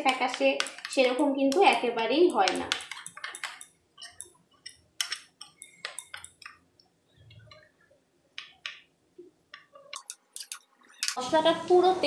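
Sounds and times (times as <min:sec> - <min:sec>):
spoon clinking against bowl: 0:02.4 - 0:06.6, 0:09.8 - 0:11.2.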